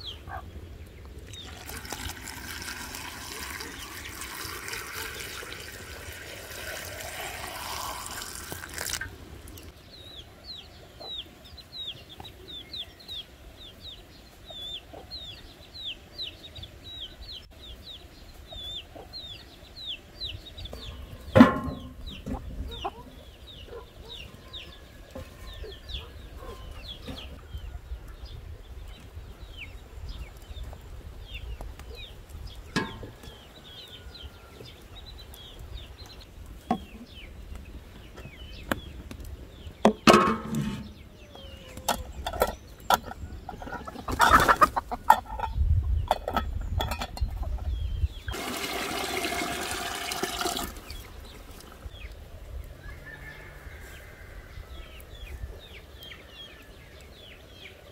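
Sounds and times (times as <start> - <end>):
chickens clucking: 0.0 - 1.5, 9.0 - 28.2, 28.8 - 48.4
water pouring into glass jars: 1.3 - 9.2, 48.3 - 51.2.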